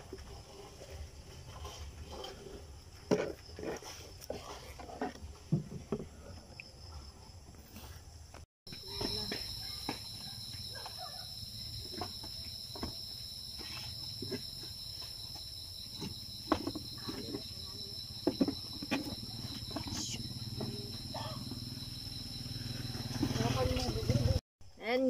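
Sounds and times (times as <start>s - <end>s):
crickets trilling: 8.7s - 25.0s.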